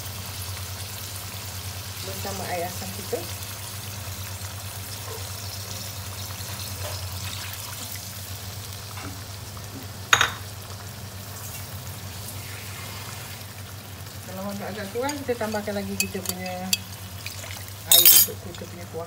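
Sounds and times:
fish sizzling in pan: 0:00.0 - 0:19.0
liquid pouring into pan: 0:16.0 - 0:18.3
sharp clink: 0:17.9 - 0:18.3.

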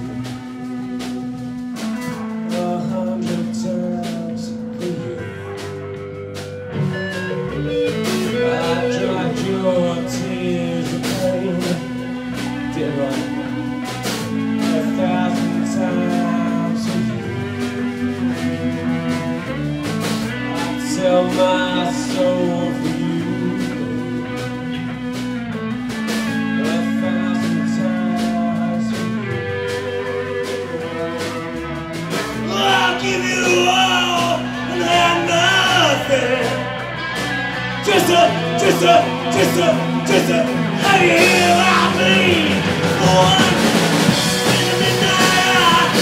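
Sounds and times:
drum kit: 0:00.0 - 0:46.0
electric guitars: 0:00.0 - 0:46.0
man singing into a microphone: 0:02.4 - 0:05.7, 0:07.7 - 0:13.8, 0:14.4 - 0:18.1, 0:20.2 - 0:24.9, 0:26.3 - 0:31.2, 0:32.3 - 0:36.8, 0:37.8 - 0:46.0.

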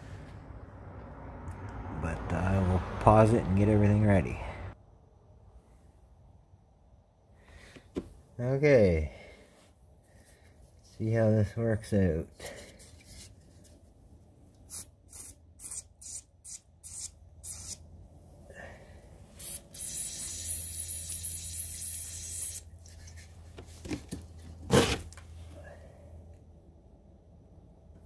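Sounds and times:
hiss: 0:19.4 - 0:22.7.

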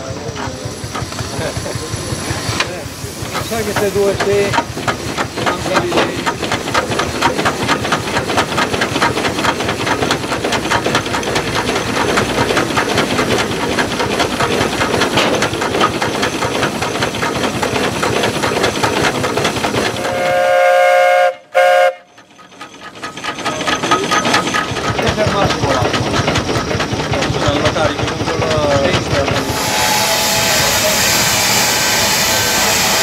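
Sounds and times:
steam engine exhaust chuffs: 0:00.0 - 0:33.0
steam hissing: 0:00.0 - 0:33.0
steam whistle blowing: 0:20.0 - 0:22.1, 0:29.5 - 0:33.0.

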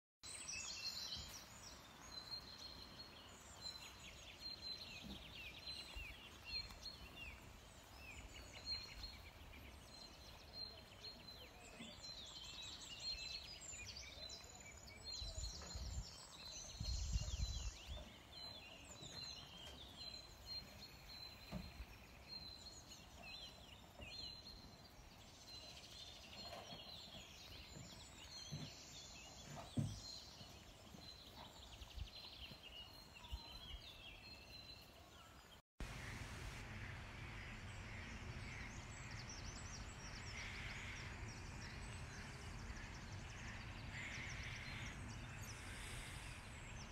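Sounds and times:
birds singing and chirping: 0:00.2 - 0:36.2
wind buffeting microphone: 0:15.1 - 0:18.0.

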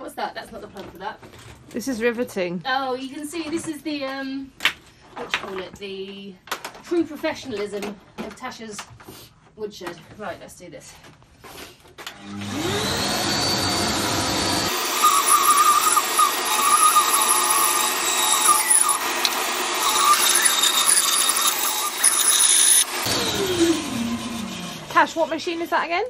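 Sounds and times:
bandsaw whining: 0:12.1 - 0:25.8
bandsaw blade cutting wood: 0:12.2 - 0:25.3.

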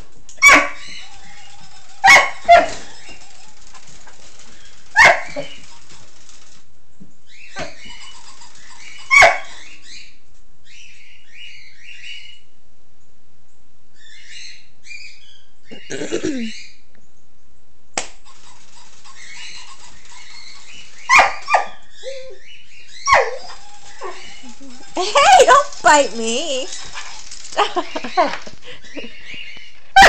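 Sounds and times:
dog barks: 0:00.4 - 0:00.8, 0:02.0 - 0:02.9, 0:05.0 - 0:05.6, 0:09.0 - 0:09.6, 0:21.1 - 0:21.8, 0:23.1 - 0:24.3
high chirping and squeaking: 0:00.4 - 0:06.5, 0:07.3 - 0:10.1, 0:18.2 - 0:29.9.

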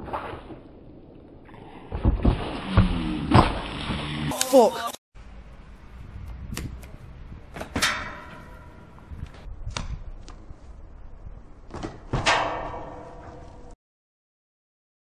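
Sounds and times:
wind on microphone: 0:05.8 - 0:11.5
thud on iron railing: 0:07.6 - 0:09.2, 0:11.8 - 0:13.8
footfalls on concrete: 0:11.7 - 0:12.3.

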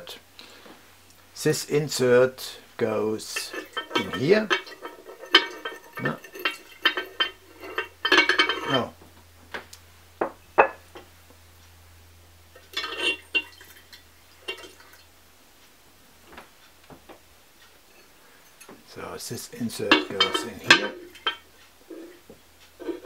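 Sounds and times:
ceramic pieces clinking and scraping: 0:03.2 - 0:08.9, 0:12.6 - 0:14.9, 0:19.5 - 0:22.2.

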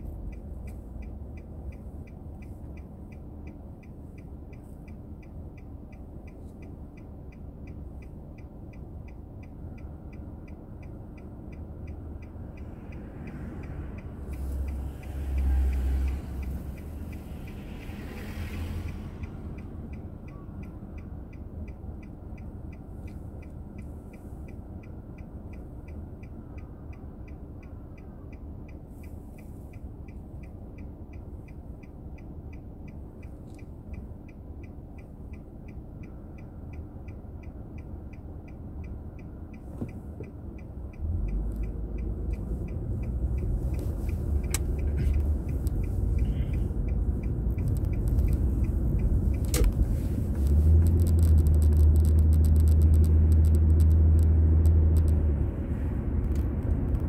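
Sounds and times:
faint fast ticking: 0:00.0 - 0:55.6
road and engine rumble: 0:00.0 - 0:57.0
passing vehicle rush: 0:09.7 - 0:26.0, 0:39.0 - 0:57.0.

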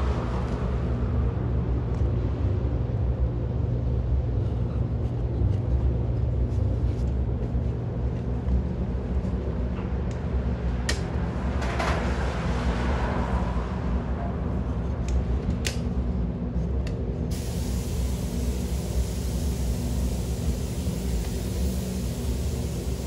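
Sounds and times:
ventilation fans humming: 0:00.0 - 0:23.0
bright steady hiss: 0:17.3 - 0:23.0
hiss: 0:17.3 - 0:23.0.

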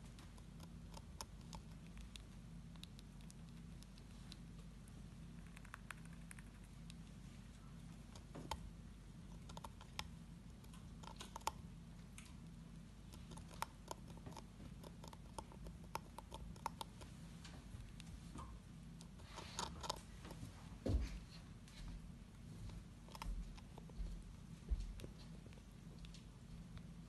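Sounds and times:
hamster nibbling: 0:00.0 - 0:27.0
low steady hum: 0:00.0 - 0:27.0.

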